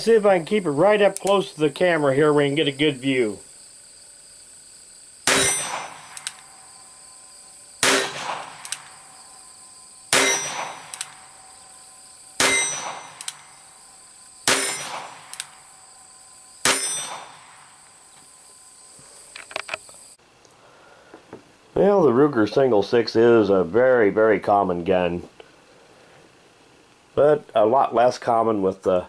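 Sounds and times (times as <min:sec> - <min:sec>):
revolver gunshots: 0:05.2 - 0:06.7, 0:07.8 - 0:09.2, 0:10.1 - 0:11.5, 0:12.4 - 0:13.7, 0:14.4 - 0:15.8, 0:16.6 - 0:17.8.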